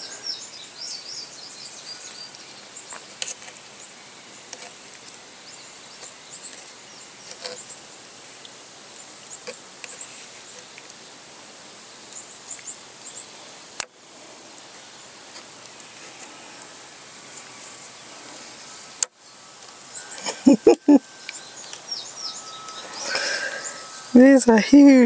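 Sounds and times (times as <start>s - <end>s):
bird chirps: 0.0s - 4.0s, 19.2s - 25.0s
insect chirps: 0.0s - 25.0s.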